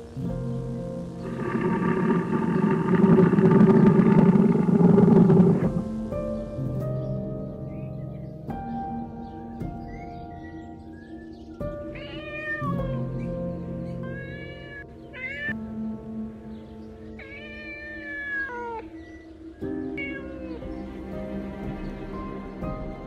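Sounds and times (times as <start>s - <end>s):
soft background music: 0.0s - 23.0s
cat meowing: 11.9s - 15.6s, 17.2s - 19.0s, 19.9s - 20.7s.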